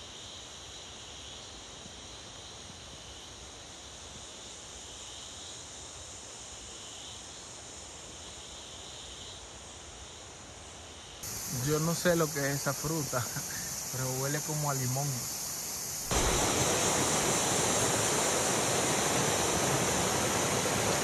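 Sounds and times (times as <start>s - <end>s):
high hiss: 0.0s - 21.0s
insects chorus: 0.0s - 21.0s.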